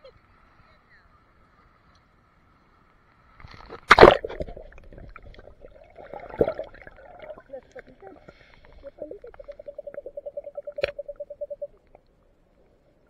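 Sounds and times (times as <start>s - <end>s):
water splashing: 3.4s - 12.0s
muffled underwater gurgling: 3.9s - 12.0s.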